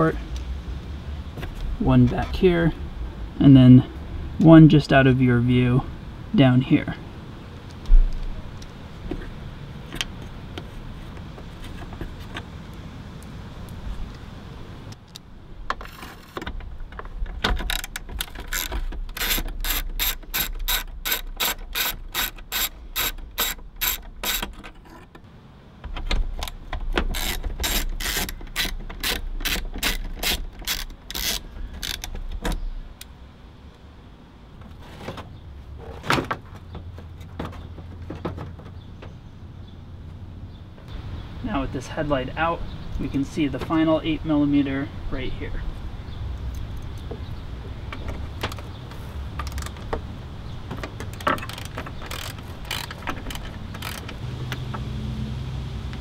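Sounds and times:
hand ratchet clicking: 17.6 - 24.6, 26.4 - 32.3, 51.1 - 54.2.

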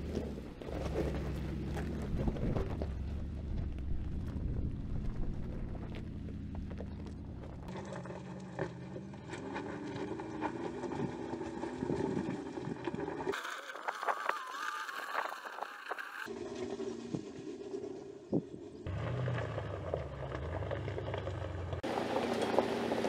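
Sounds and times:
stones crunching under tyres: 0.0 - 16.3, 18.3 - 23.0
engine accelerating under load: 18.8 - 23.0.

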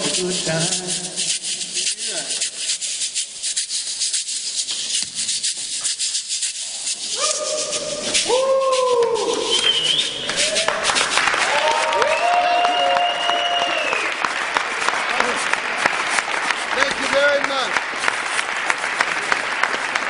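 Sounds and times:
handheld percussion shaking: 0.0 - 20.0
audience whooping and cheering: 7.1 - 17.7
applause: 9.6 - 20.0.

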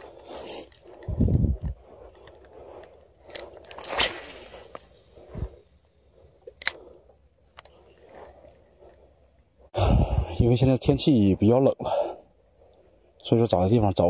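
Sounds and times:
fishing rod cast whoosh: 3.3 - 5.6.

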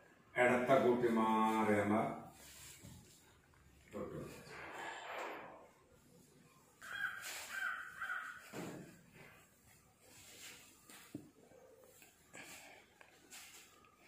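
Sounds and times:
crow cawing: 6.8 - 8.8.

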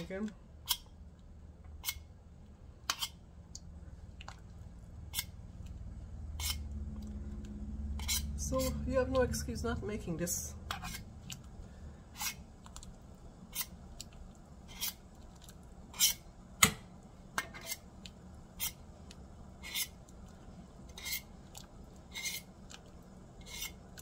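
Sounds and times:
knife scraping a metal pot lid: 1.8 - 2.0, 2.9 - 3.2, 6.4 - 6.7, 8.0 - 8.8, 10.7 - 11.1, 12.1 - 12.4, 13.5 - 13.7, 14.7 - 15.0, 15.9 - 16.2, 17.4 - 17.9, 18.6 - 18.8, 19.6 - 20.0, 20.9 - 21.3, 22.1 - 22.5, 23.4 - 23.8.

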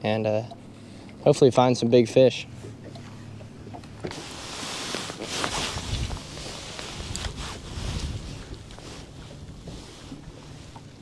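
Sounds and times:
footsteps on boat deck: 2.6 - 11.0
clothing rustle: 4.1 - 10.7
wind hiss on microphone: 5.6 - 8.8.

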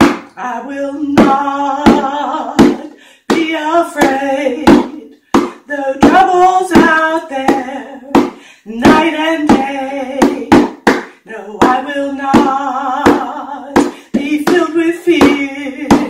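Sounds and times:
woman singing: 0.0 - 16.0
bongo drums: 4.7 - 16.0.

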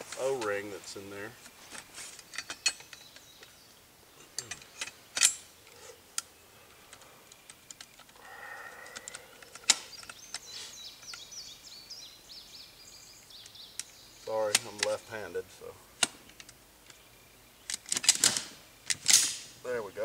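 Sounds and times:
shotgun barrel metal clicks: 8.8 - 11.2.

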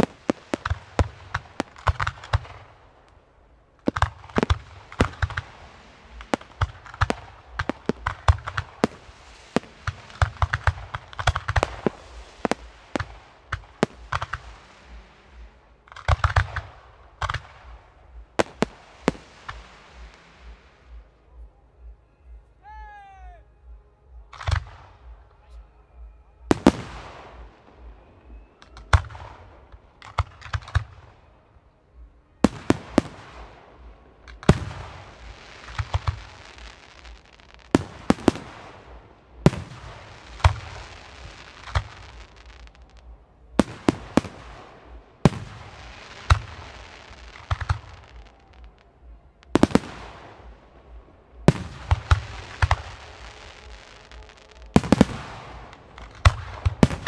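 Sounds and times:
fireworks hiss: 0.0 - 21.2, 32.4 - 48.8.

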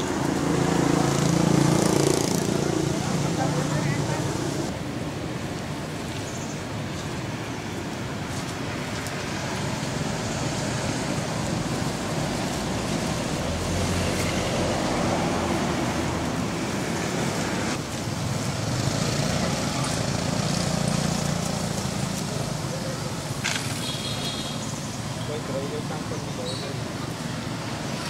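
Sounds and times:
road traffic rumble: 0.0 - 28.0.

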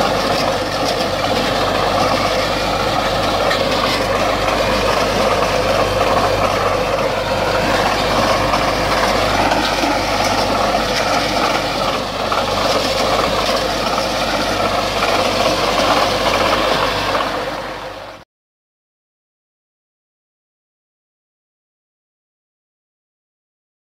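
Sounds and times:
tractor diesel engine running: 0.0 - 18.2.

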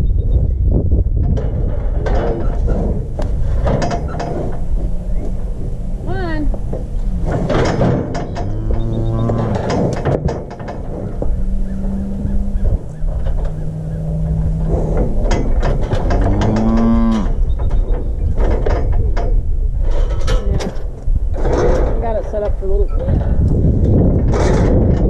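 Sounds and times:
metal cattle chute clanking: 1.1 - 25.0
cattle mooing: 4.2 - 17.5.

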